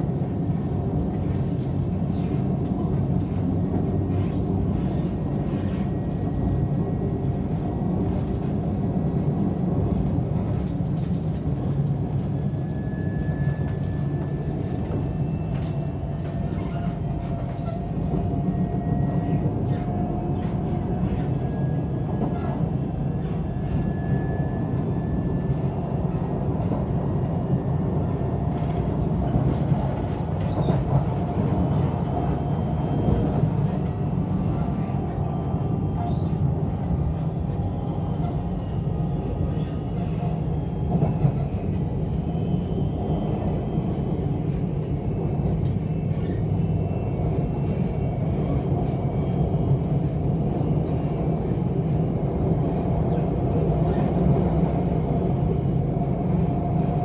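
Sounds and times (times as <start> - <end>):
train wheels rumbling on track: 0.0 - 57.0.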